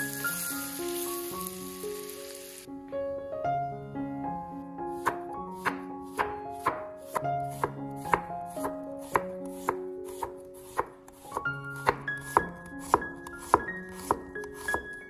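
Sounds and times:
light background music: 0.0s - 15.0s
knife chopping on wooden board: 5.0s - 15.0s.

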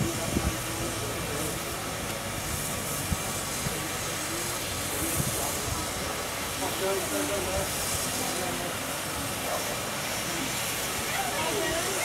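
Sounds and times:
steam locomotive hissing: 0.0s - 12.0s.

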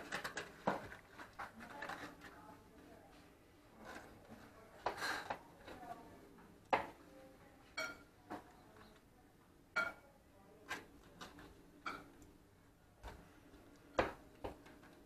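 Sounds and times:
cutlery clinking on metal pan: 7.8s - 8.1s, 9.8s - 10.0s, 11.8s - 12.1s.

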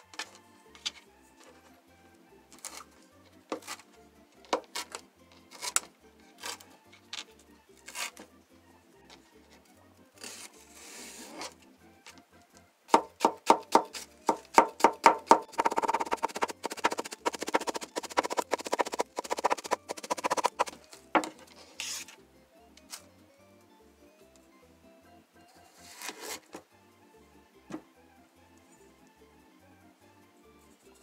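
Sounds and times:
knife chopping on plastic board: 12.9s - 21.3s.

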